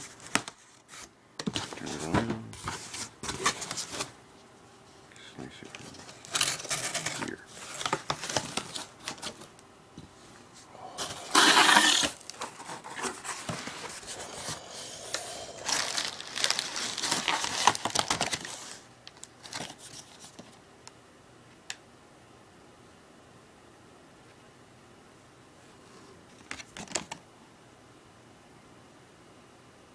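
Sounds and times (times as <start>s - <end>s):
packing material rustling: 5.7s - 9.5s, 11.0s - 20.5s.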